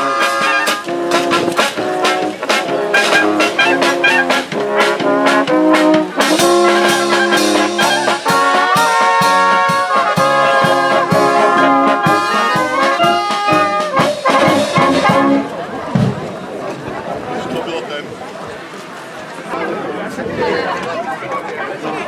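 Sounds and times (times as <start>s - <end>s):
trumpets: 0.0s - 16.2s
steady drum beat: 0.0s - 16.3s
tuba: 0.0s - 16.3s.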